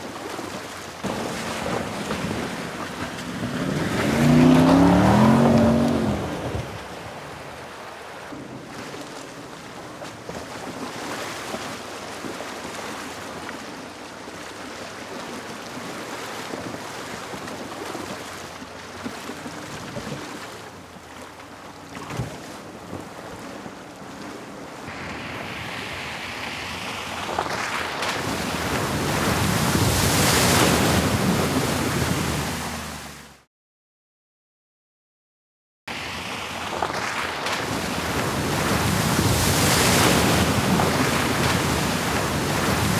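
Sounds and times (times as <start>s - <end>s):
rush of water: 0.0s - 33.5s, 35.9s - 42.9s
engine revving: 2.0s - 7.0s
steady rushing noise: 24.8s - 30.6s.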